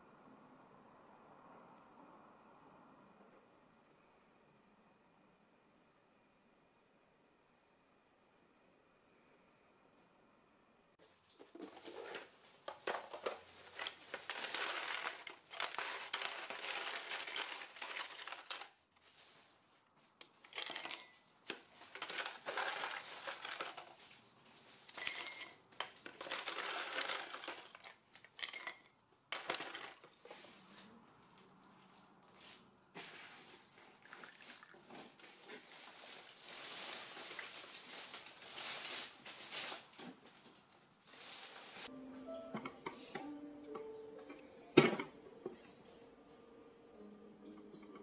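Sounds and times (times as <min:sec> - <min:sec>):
ice cubes clattering into mug: 0:12.8 - 0:18.7, 0:20.5 - 0:21.2, 0:21.8 - 0:23.9, 0:24.9 - 0:30.1
water pouring over ice: 0:33.9 - 0:34.9.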